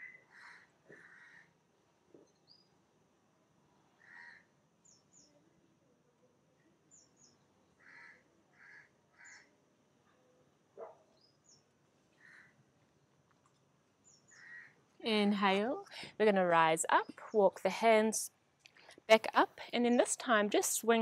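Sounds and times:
faint bird calls: 0.0 - 1.6, 6.9 - 12.6, 14.1 - 14.8.

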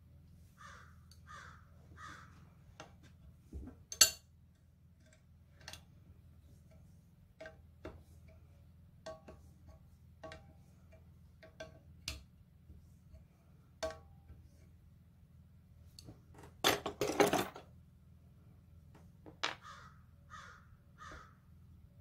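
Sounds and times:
faint steady hum: 0.0 - 22.0
wrench clattering among tools: 16.4 - 17.7.

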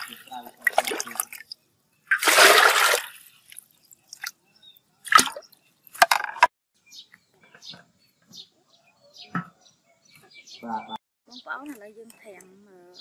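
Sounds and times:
scoop splashing and knocking: 0.0 - 1.5, 2.1 - 4.3, 5.1 - 6.5.

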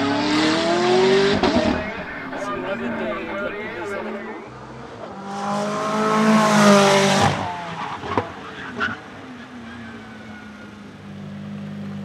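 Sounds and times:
race car engine passing: 0.0 - 9.2.

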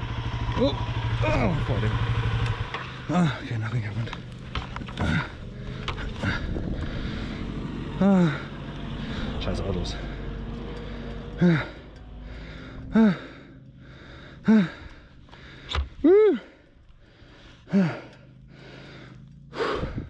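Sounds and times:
motorcycle engine hum: 0.0 - 20.0
man grunting with effort: 5.0 - 7.4, 8.0 - 8.5, 11.3 - 16.7, 17.7 - 18.2.

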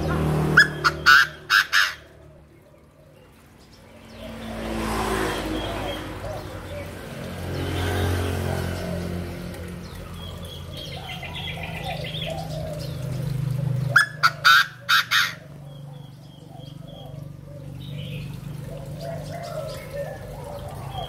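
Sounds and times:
francolin harsh crowing call: 0.6 - 2.2, 14.0 - 15.5.

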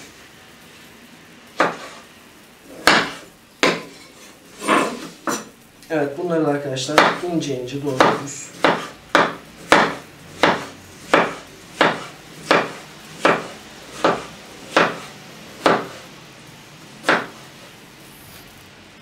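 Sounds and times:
knife chopping on wooden board: 1.6 - 2.0, 2.7 - 4.0, 6.9 - 7.3, 7.9 - 16.0, 17.0 - 17.4.

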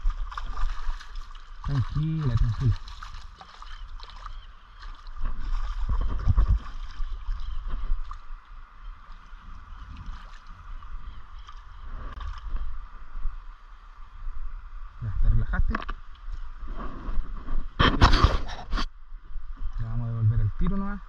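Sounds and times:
splashes of movement in water: 0.0 - 8.3
river water flowing: 0.0 - 15.0.

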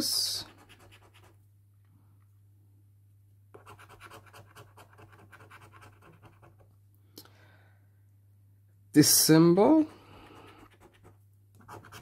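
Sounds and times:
coin scratching lottery ticket: 10.7 - 12.0.

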